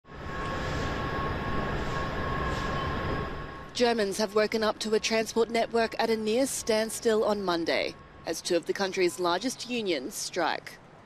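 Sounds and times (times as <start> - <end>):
steady high whine: 0.0 - 11.0
station hall rumble and hiss: 0.1 - 5.5.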